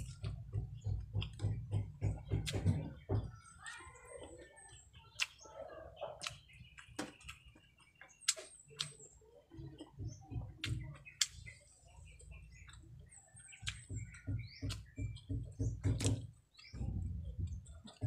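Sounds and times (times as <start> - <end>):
mouth clicks and smacks: 0.0 - 3.0, 5.0 - 5.4, 6.0 - 18.0
person chewing: 12.2 - 15.3, 17.3 - 18.0.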